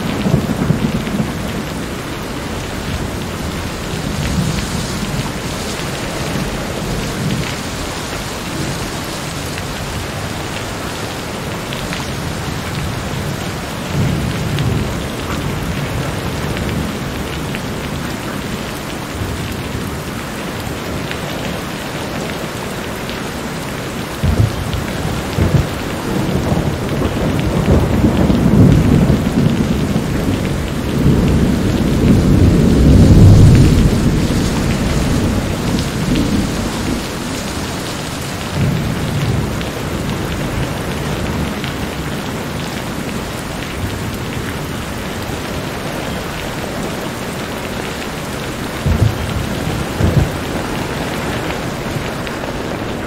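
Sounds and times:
thunder rolling: 0.0s - 9.0s, 24.2s - 42.0s, 48.7s - 53.0s
steady rain: 0.0s - 53.0s.

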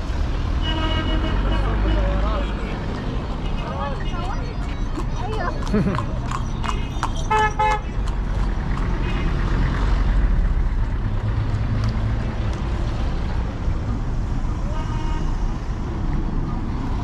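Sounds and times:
street traffic rumble: 0.0s - 17.0s
vehicle horn toots: 0.6s - 2.0s, 6.7s - 8.0s, 14.7s - 15.4s.

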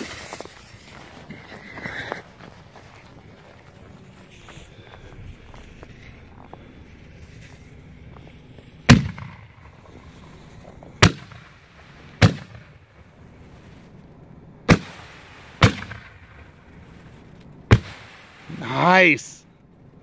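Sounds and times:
firework shell launch booms: 8.9s - 9.8s, 11.0s - 12.8s, 14.7s - 16.5s, 17.7s - 18.7s.

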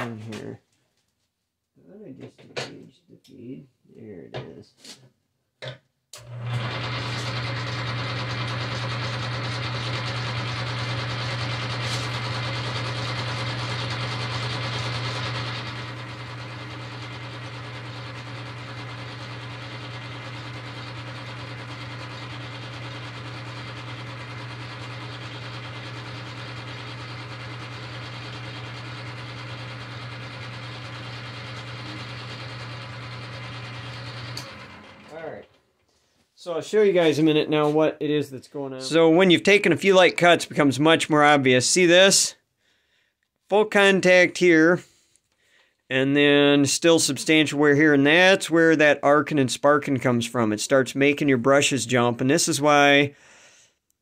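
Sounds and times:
metal lathe running: 6.2s - 35.3s.

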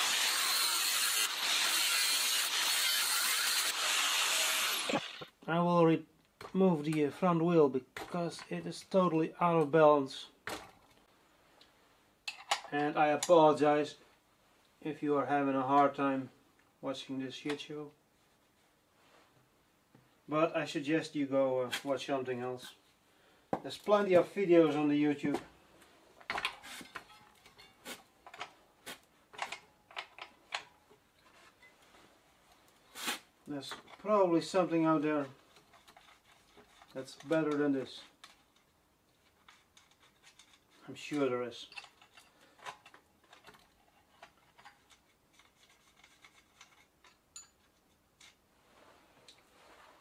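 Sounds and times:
tool scraping metal: 0.0s - 5.3s, 43.9s - 47.5s
light metallic clicks and clinks: 46.7s - 47.9s.

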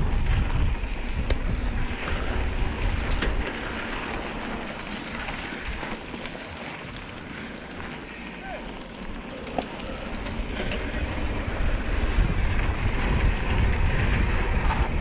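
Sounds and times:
wind buffeting microphone: 0.0s - 8.0s, 9.1s - 15.0s
bike rattling over bumps: 0.0s - 15.0s
bike tyres hissing on dirt: 0.0s - 15.0s.

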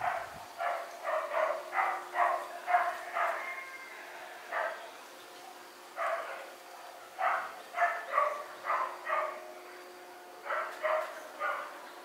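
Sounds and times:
dog barking: 0.0s - 3.6s, 4.5s - 4.8s, 6.0s - 6.5s, 7.2s - 9.5s, 10.4s - 11.8s
faint steady hum: 0.0s - 12.0s.

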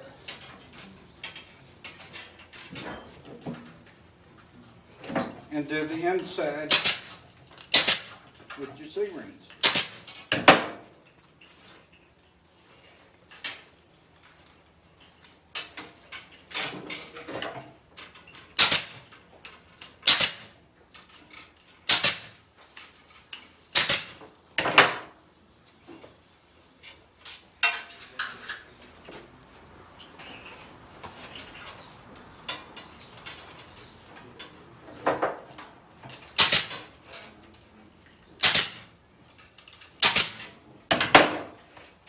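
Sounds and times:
wire mesh clinks and rustles: 0.1s - 24.5s, 35.4s - 40.8s
pneumatic ring gun snaps: 18.6s - 19.0s, 20.0s - 20.5s, 21.9s - 22.4s, 23.7s - 24.2s.

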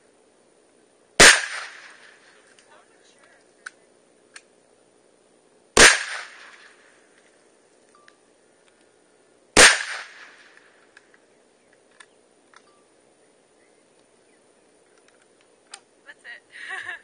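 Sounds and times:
rifle shots with echo: 1.2s - 2.3s, 5.8s - 6.8s, 9.6s - 10.6s.

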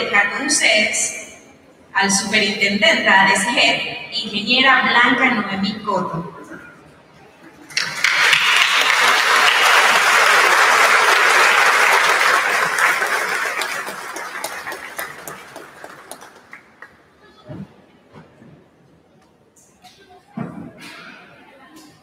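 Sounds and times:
audience applauding: 7.7s - 17.0s.

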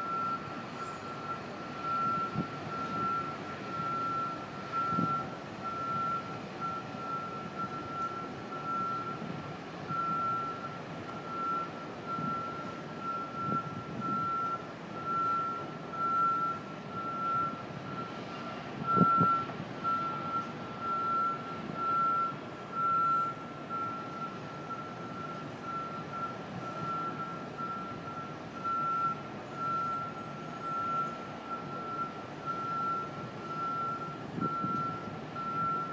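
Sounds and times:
machine warning alarm beeping: 0.0s - 9.2s, 18.9s - 35.9s
low city hum: 0.0s - 35.9s.

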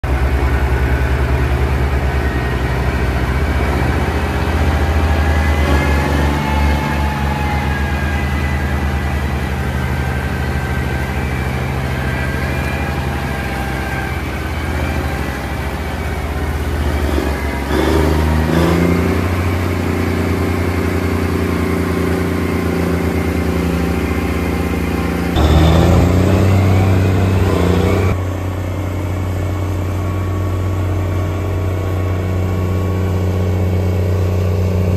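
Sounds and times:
tractor diesel engine drone: 0.0s - 34.9s.

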